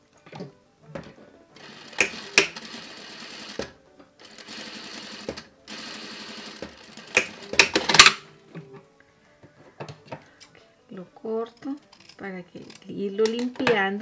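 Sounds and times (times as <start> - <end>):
sharp clicks: 1.6 - 2.6, 7.1 - 8.2
sewing machine stitching: 1.6 - 8.2.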